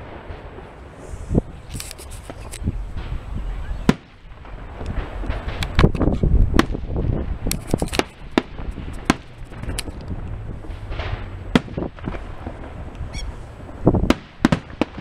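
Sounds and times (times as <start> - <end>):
firework shells bursting: 0.0 - 15.0
low rumble: 8.1 - 14.1.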